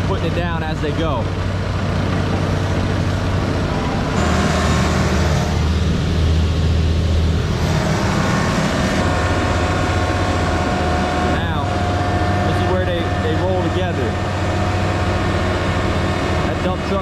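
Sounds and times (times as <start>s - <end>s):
diesel engines humming: 0.0s - 17.0s.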